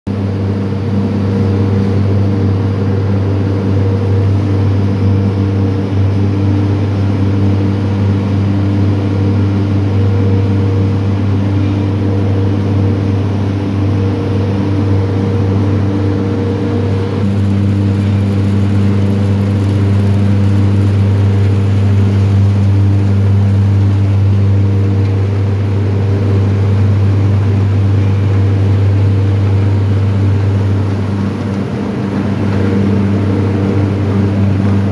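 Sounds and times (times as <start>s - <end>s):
machinery drone: 14.0s - 34.9s
pulsing high tones: 17.2s - 23.6s.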